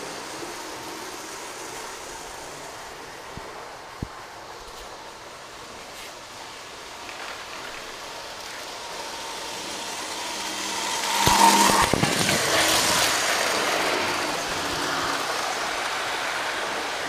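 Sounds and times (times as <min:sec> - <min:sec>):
model train passing: 0:00.0 - 0:17.0
wheels clicking over track joints: 0:06.1 - 0:17.0.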